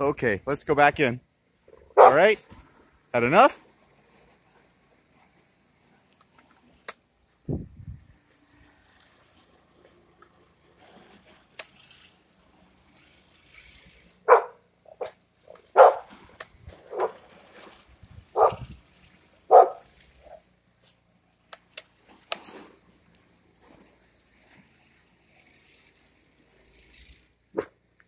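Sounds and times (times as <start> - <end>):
dog barking: 2.0 - 2.3, 14.3 - 16.1, 16.9 - 17.2, 18.4 - 18.6, 19.5 - 19.9.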